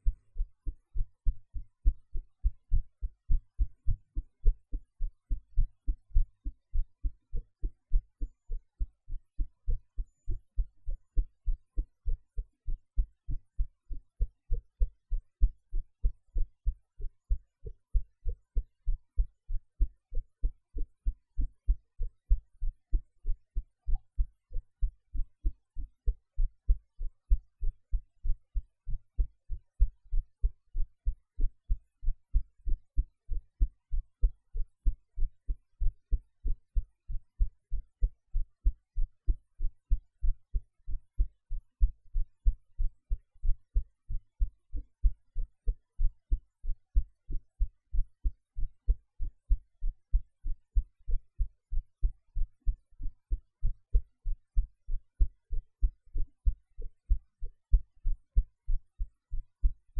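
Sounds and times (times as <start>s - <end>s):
heartbeat thumps: 0.0s - 59.8s.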